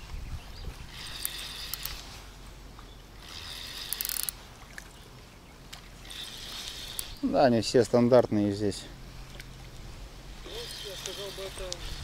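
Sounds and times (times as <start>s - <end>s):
fishing reel gears whirring and ticking: 0.9s - 2.1s, 3.2s - 4.4s, 6.0s - 7.2s, 10.4s - 12.0s.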